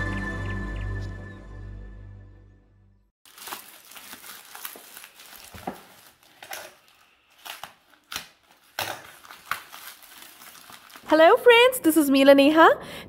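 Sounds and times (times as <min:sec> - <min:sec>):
plastic wrapping crinkling and tearing: 0:03.2 - 0:11.5.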